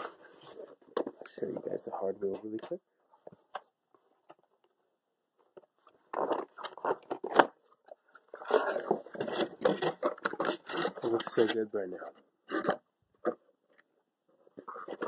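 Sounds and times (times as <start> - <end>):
packaging rustling and scraping: 0.0 - 1.2, 6.0 - 7.5, 8.2 - 11.7, 14.4 - 15.0.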